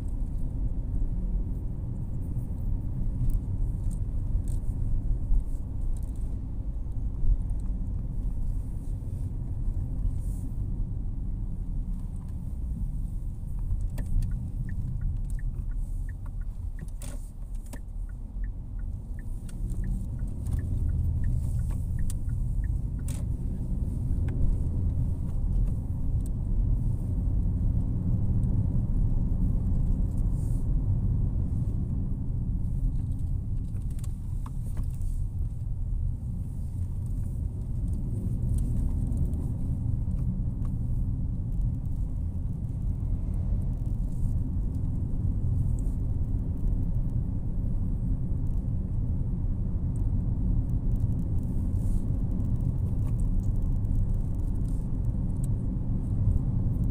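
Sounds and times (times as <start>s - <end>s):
car engine and road rumble: 0.0s - 56.9s
turn indicator ticking: 13.5s - 26.4s.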